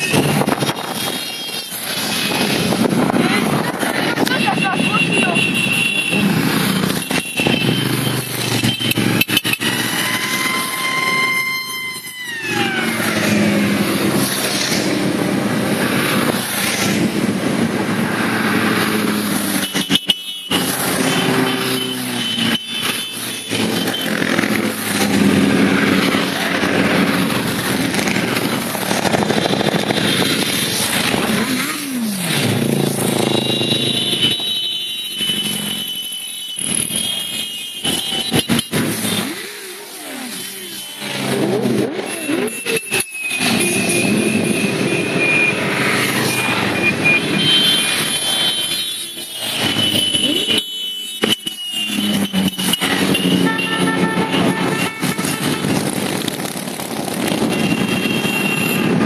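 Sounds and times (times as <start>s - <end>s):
motorcycles revving past: 20.6s - 33.9s.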